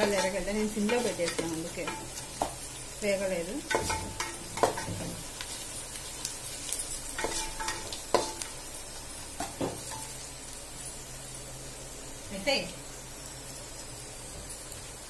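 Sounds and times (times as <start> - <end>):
onions sizzling in oil: 0.0 - 15.0
wooden spoon knocking against pan: 3.7 - 5.2.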